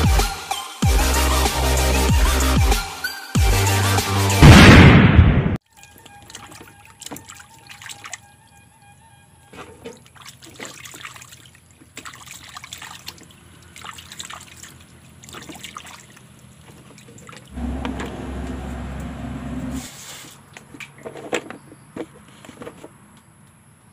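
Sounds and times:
hands sloshing clams in water: 0:10.0 - 0:17.5
steady low hum: 0:17.6 - 0:19.8.

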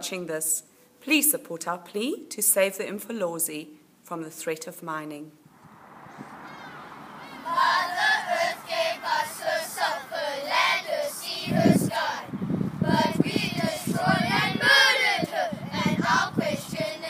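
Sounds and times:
children singing in unison: 0:06.4 - 0:17.0.

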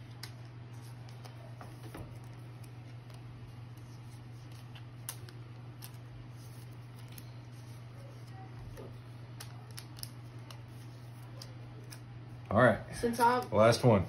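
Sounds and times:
trading cards clicking and rustling: 0:00.0 - 0:12.1
steady low hum: 0:00.0 - 0:14.0.

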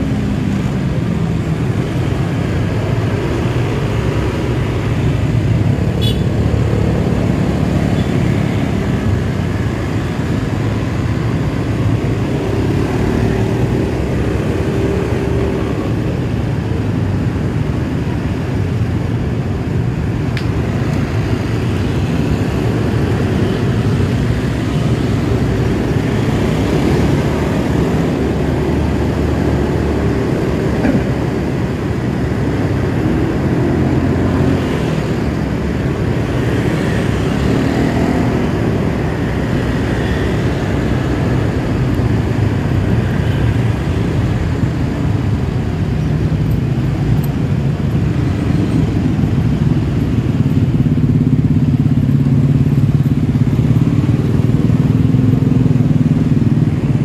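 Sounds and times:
surrounding traffic: 0:00.0 - 0:57.0.

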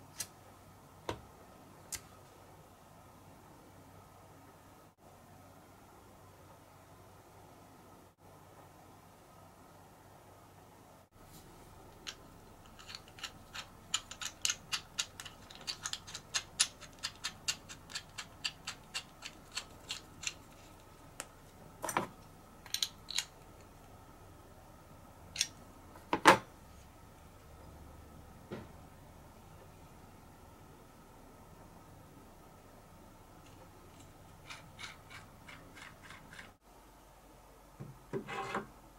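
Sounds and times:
small metal clicks: 0:11.9 - 0:20.9, 0:22.6 - 0:23.7.

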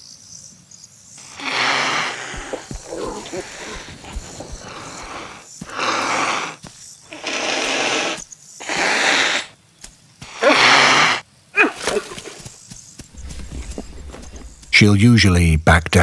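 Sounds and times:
cheetah hissing: 0:01.2 - 0:09.6, 0:10.2 - 0:12.5, 0:13.1 - 0:14.8.

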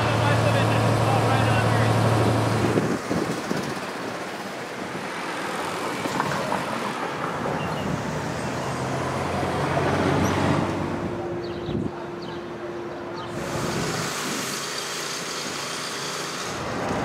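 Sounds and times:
cars driving past: 0:00.0 - 0:17.0.

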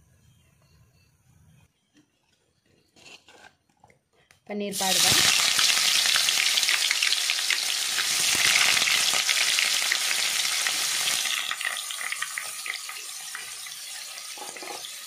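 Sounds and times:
cheese sizzling in hot oil: 0:04.8 - 0:15.0.

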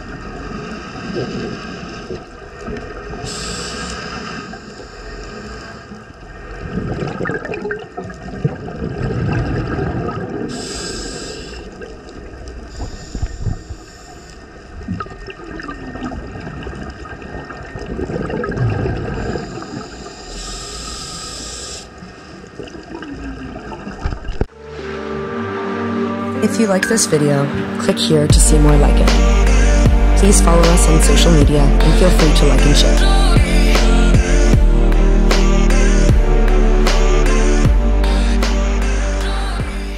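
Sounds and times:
hissing regulator inhalations: 0:03.2 - 0:06.0, 0:10.5 - 0:11.8, 0:12.7 - 0:14.7, 0:19.2 - 0:22.4
gurgling exhaled bubbles: 0:06.3 - 0:13.6, 0:14.7 - 0:20.6, 0:22.4 - 0:24.5.

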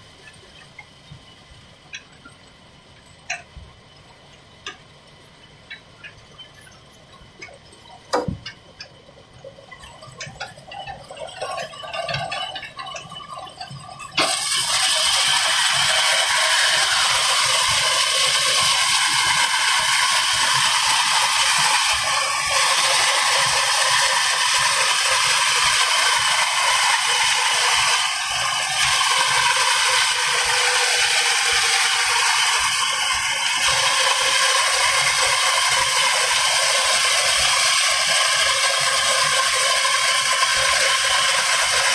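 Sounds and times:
clacks and knocks: 0:07.4 - 0:09.0
saw rasping through wood: 0:14.2 - 0:41.9.

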